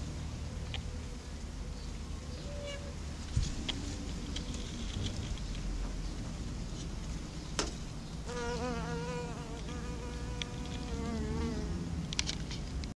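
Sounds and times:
bee buzzing in flight: 0:08.3 - 0:11.8.

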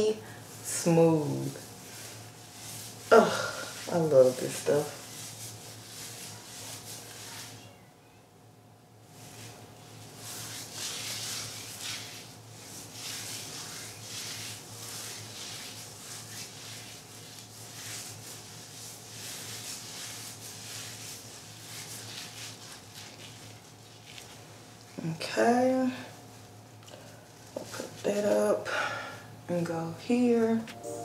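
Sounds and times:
hands rustling through wet hair: 0:00.0 - 0:07.8, 0:09.0 - 0:25.0
faint steady hum: 0:00.0 - 0:31.0.

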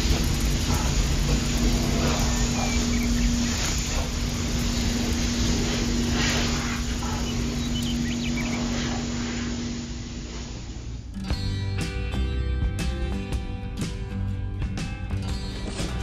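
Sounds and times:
water spray hissing: 0:00.0 - 0:11.1
water pump motor humming: 0:00.0 - 0:11.4.

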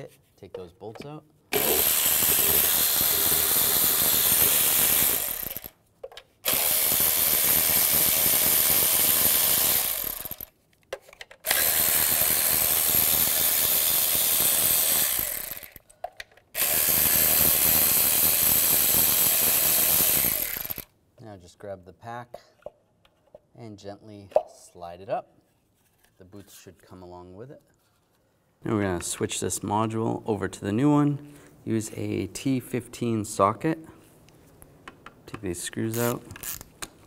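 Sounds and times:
cordless ratchet motor spinning: 0:01.5 - 0:05.8, 0:06.4 - 0:10.5, 0:11.4 - 0:15.8, 0:16.6 - 0:20.9.

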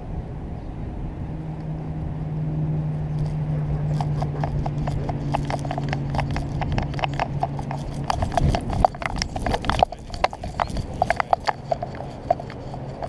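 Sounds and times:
dog paws thumping and clicking: 0:03.1 - 0:13.0.

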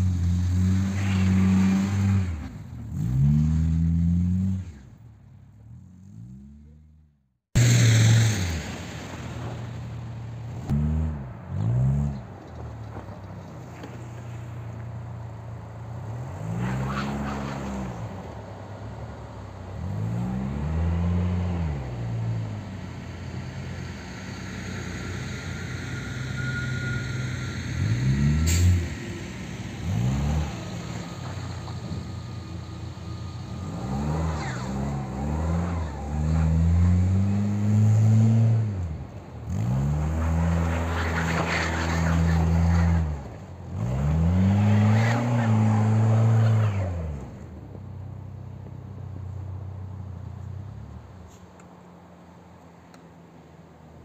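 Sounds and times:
car engine revving: 0:29.6 - 0:47.8.

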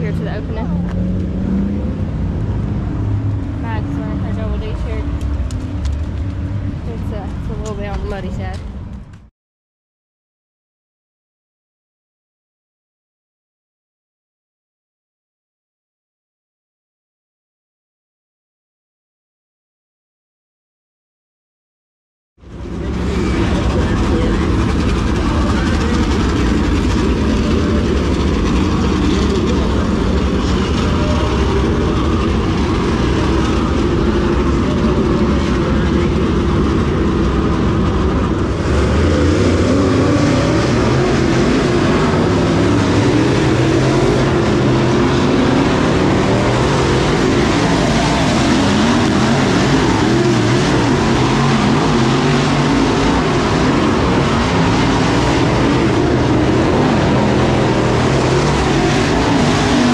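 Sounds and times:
race car engines passing: 0:00.0 - 0:09.0, 0:22.4 - 0:59.9.

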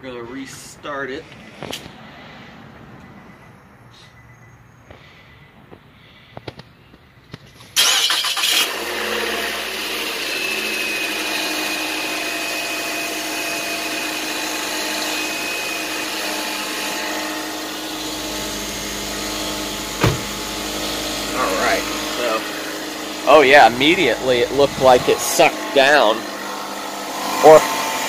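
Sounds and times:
car engine cranking and idling: 0:07.3 - 0:28.0.

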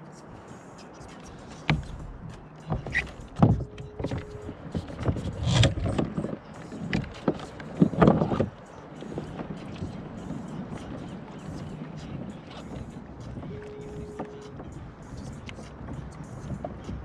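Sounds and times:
gear knocking and rubbing: 0:01.3 - 0:17.0
short steady tone: 0:13.5 - 0:14.6.

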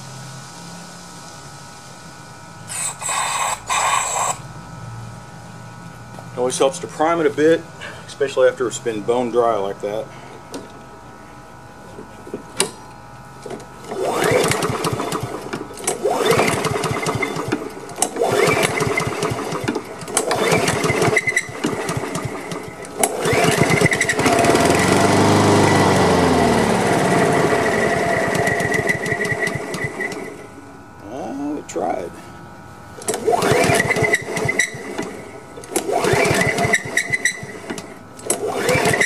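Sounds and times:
lawn mower engine running: 0:11.8 - 0:39.0
lawn mower pull-start cranking: 0:13.4 - 0:30.5, 0:33.0 - 0:39.0.

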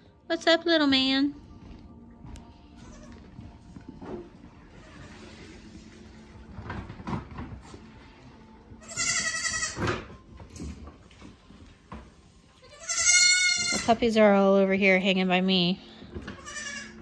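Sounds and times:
goat kid bleating: 0:02.8 - 0:03.3, 0:04.7 - 0:05.5, 0:08.8 - 0:09.8, 0:12.6 - 0:13.9, 0:16.3 - 0:17.0.

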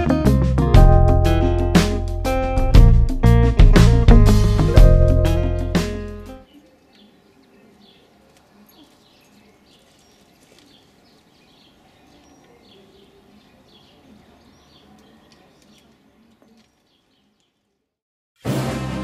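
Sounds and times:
small birds chirping: 0:06.4 - 0:17.8.

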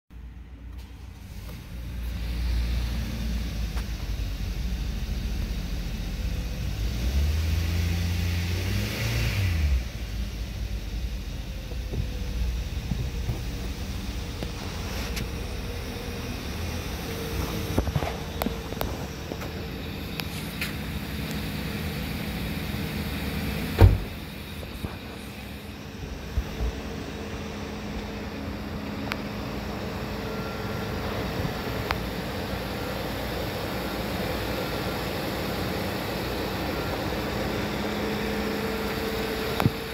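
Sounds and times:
car engine starting and idling: 0:00.2 - 0:39.9
sharp thump: 0:23.8 - 0:24.3.

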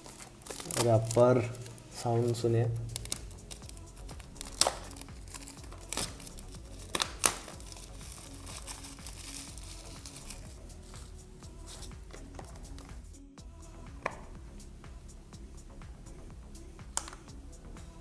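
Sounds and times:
plastic shrink-wrap crinkling: 0:00.0 - 0:10.5.

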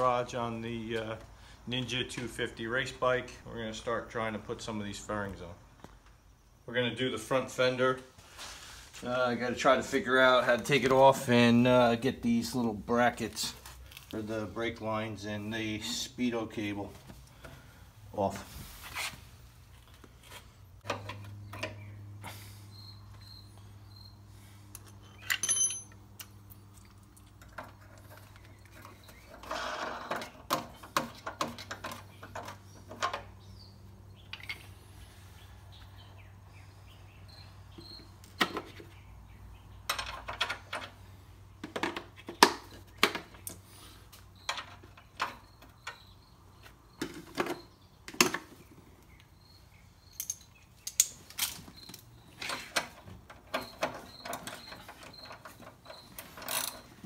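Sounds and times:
clicks and knocks of tools: 0:50.1 - 0:56.9.

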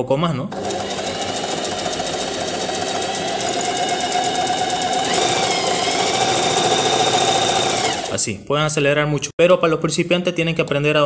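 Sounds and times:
sewing machine running: 0:00.5 - 0:08.2.

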